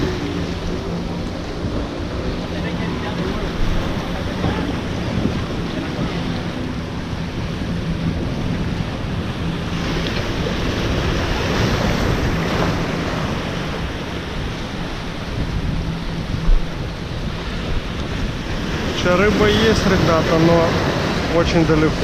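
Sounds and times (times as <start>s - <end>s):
surf breaking over boulders: 17.4s - 22.0s.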